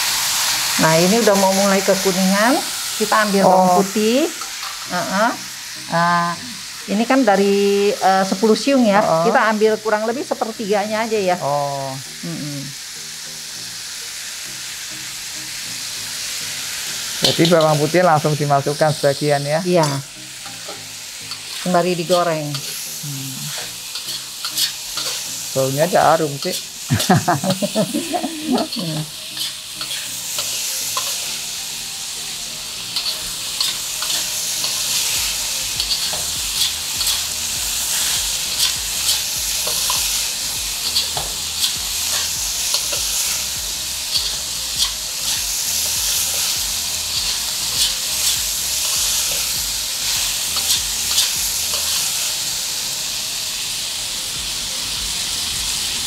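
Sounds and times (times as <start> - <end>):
meat sizzling in oil: 0.0 - 56.0
utensil scraping a pan: 23.5 - 25.2.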